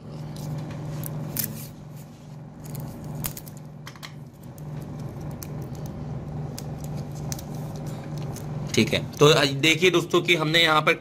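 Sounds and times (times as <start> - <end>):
steady low hum: 0.0 - 11.0
tape clicking and rustling: 2.6 - 9.4.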